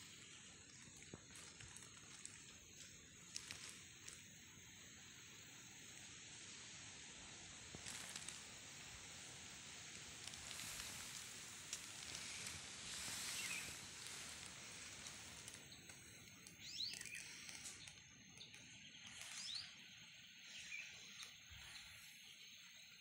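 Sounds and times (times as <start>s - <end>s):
faint high insect drone: 0.0s - 23.0s
steady hiss: 0.0s - 23.0s
birds chirping: 10.0s - 23.0s.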